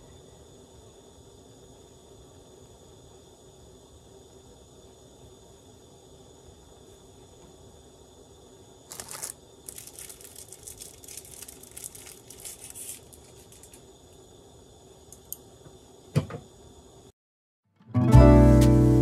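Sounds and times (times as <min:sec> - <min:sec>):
faint steady hum: 0:00.0 - 0:17.2
crinkling handling noises: 0:08.9 - 0:13.8
knock: 0:16.2 - 0:16.4.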